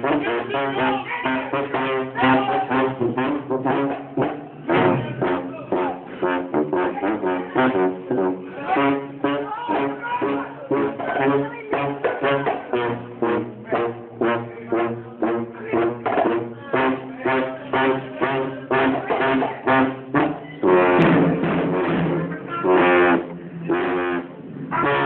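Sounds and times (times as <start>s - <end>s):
brass band playing: 0.0s - 25.0s.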